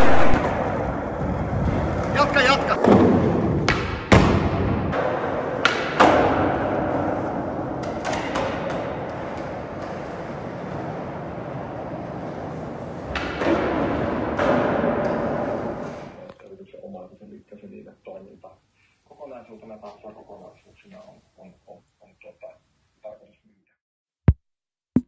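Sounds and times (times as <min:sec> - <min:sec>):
skateboard wheels rolling on concrete: 0:00.0 - 0:16.3
skateboard clacking on ground: 0:04.9 - 0:15.8.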